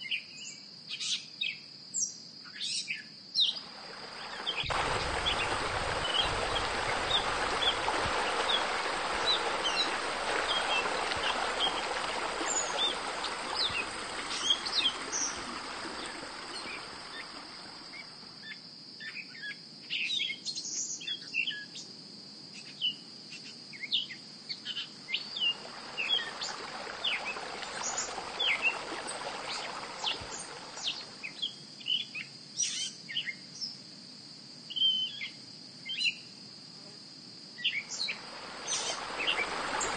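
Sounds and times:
small birds chirping: 0:02.6 - 0:18.1, 0:37.6 - 0:39.9
broad rushing noise: 0:03.6 - 0:17.8, 0:25.7 - 0:31.2, 0:38.2 - 0:39.9
high insect drone: 0:03.6 - 0:19.0, 0:25.4 - 0:31.5, 0:36.7 - 0:39.9.

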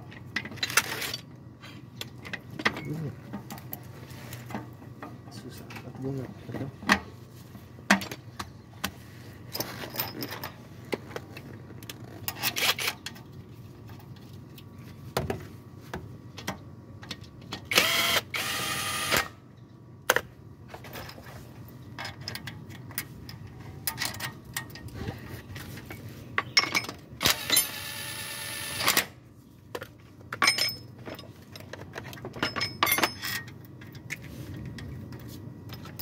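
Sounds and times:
small power tool whirring: 0:17.7 - 0:19.3, 0:27.2 - 0:29.1
metal tools clicking and knocking: 0:25.9 - 0:27.8, 0:29.8 - 0:34.2.

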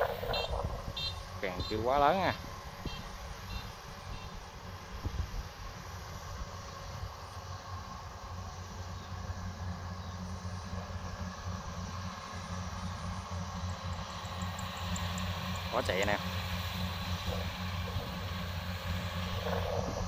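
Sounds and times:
combine harvester running: 0:00.0 - 0:20.0.

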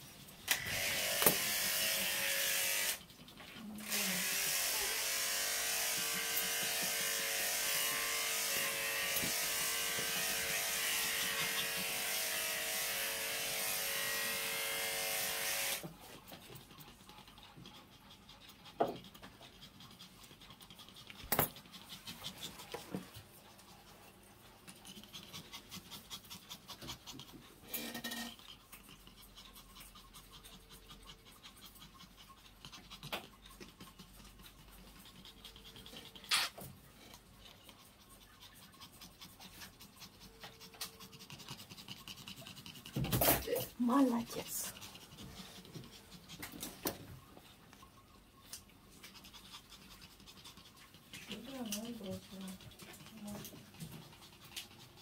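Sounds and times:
dog panting: 0:00.0 - 0:14.5, 0:15.2 - 0:55.0
electric grooming device buzzing: 0:00.5 - 0:03.0, 0:03.8 - 0:15.9, 0:27.7 - 0:28.4.

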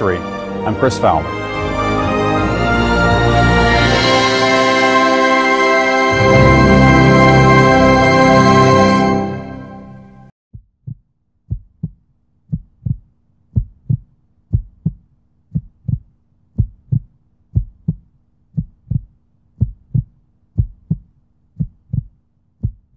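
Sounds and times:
deep heartbeat thumps: 0:10.5 - 0:22.9
faint steady hum: 0:11.5 - 0:22.9.

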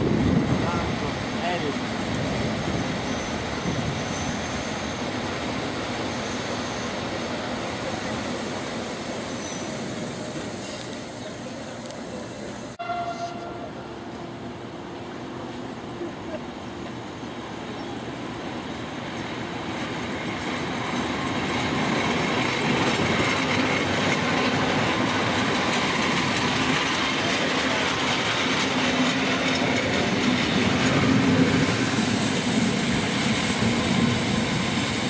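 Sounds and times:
electric train passing: 0:00.0 - 0:35.0
wheel squeal: 0:04.0 - 0:05.1, 0:06.0 - 0:07.1, 0:09.3 - 0:10.0.

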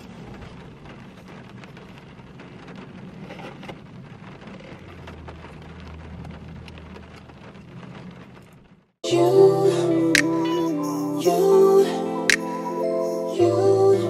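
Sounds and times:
rain on car roof: 0:00.0 - 0:09.4.

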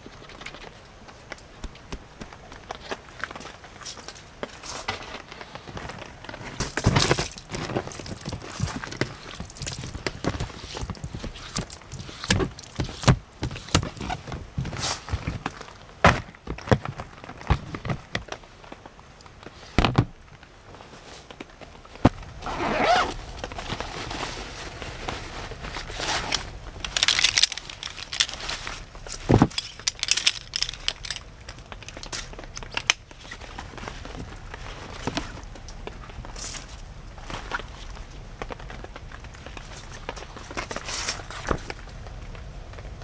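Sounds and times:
nylon bag rustling: 0:02.7 - 0:18.1, 0:20.7 - 0:32.0.

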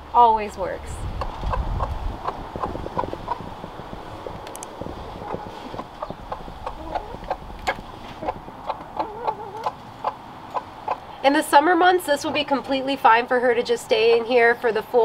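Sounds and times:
hen clucking: 0:01.2 - 0:03.6, 0:05.0 - 0:11.2, 0:13.6 - 0:14.6.

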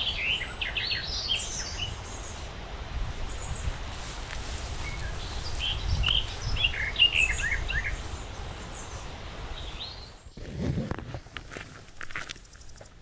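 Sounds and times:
small bird chirping: 0:04.6 - 0:10.2.

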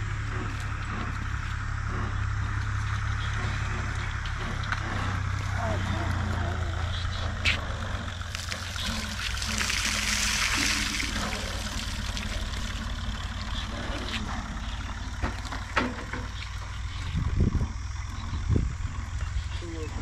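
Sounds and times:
low engine hum: 0:00.0 - 0:20.0
water pouring and splashing: 0:08.2 - 0:13.8.

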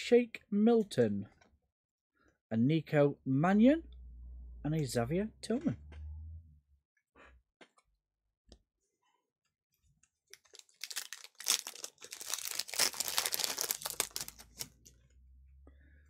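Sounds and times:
foil wrapper crinkling: 0:10.3 - 0:14.9.

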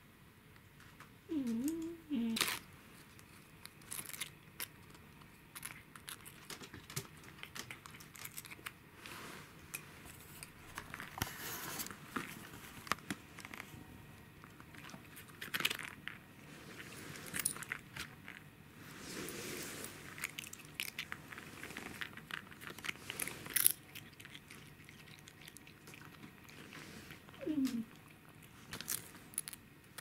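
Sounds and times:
cat crunching a treat: 0:02.4 - 0:18.5, 0:19.2 - 0:30.0
foil packet crinkling: 0:20.1 - 0:30.0.

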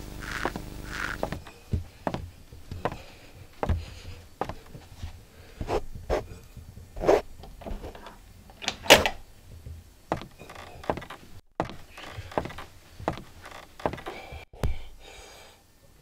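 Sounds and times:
door opening: 0:07.4 - 0:14.2
door latch clicking: 0:08.5 - 0:09.2.

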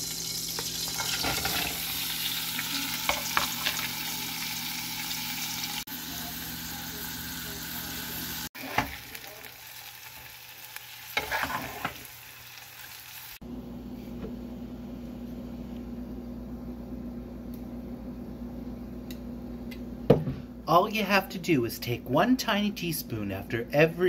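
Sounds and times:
onions sizzling in a pan: 0:00.0 - 0:13.4
metal spoon scraping a pan: 0:11.2 - 0:12.1.

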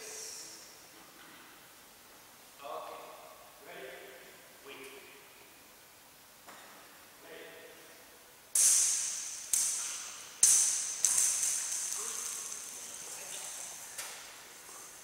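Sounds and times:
racket hitting rattling ball: 0:08.6 - 0:14.4
ball bouncing on wooden floor: 0:10.4 - 0:12.8.

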